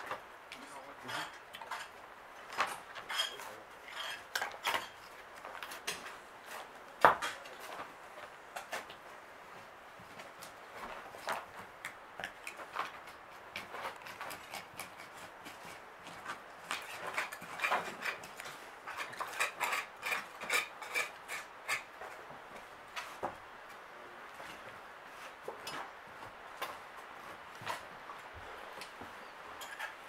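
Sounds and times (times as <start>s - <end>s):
trowels scraping soil: 16.7s - 21.9s.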